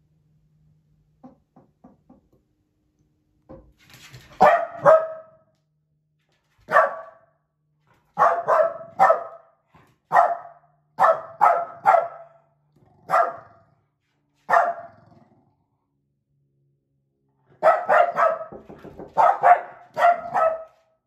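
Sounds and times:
dog barking: 4.4s - 5.4s, 6.7s - 7.3s, 8.1s - 13.7s, 14.5s - 15.0s, 17.6s - 20.9s.

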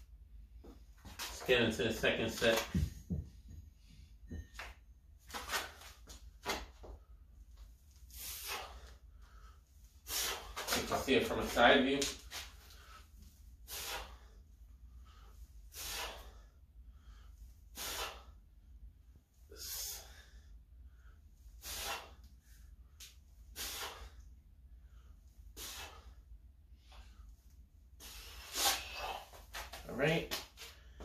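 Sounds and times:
man breathing out hard: 8.1s - 10.7s, 13.7s - 18.4s, 19.5s - 22.7s, 23.5s - 27.2s.

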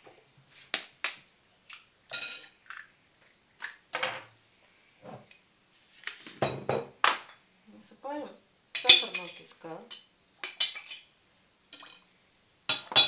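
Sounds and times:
metal spoon clinking on glass bowl: 8.8s - 9.4s, 12.7s - 13.0s.

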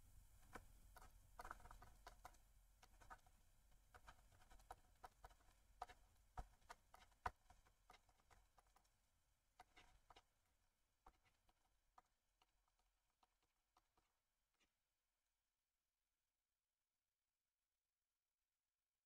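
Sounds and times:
stylus tapping and scratching on tablet: 0.3s - 15.3s.

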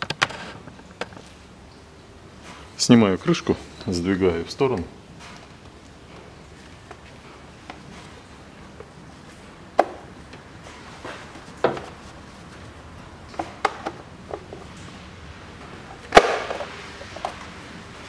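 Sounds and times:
plastic clicks and knocks: 13.3s - 14.6s.

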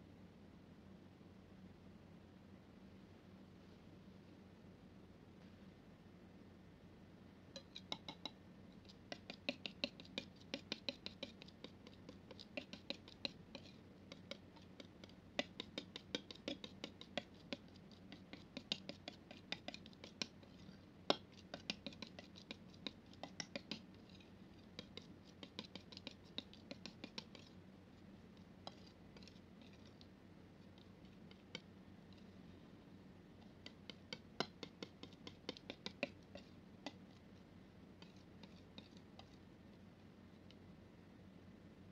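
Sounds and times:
palette knife scraping wet paint: 8.9s - 32.3s, 33.4s - 39.4s.

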